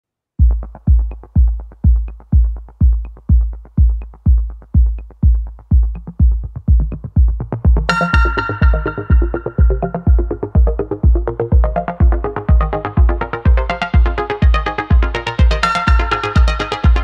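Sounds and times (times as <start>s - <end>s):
deep bass kick: 0.4s - 17.0s
electronic dance music: 0.4s - 17.0s
bright synth melody: 7.9s - 17.0s.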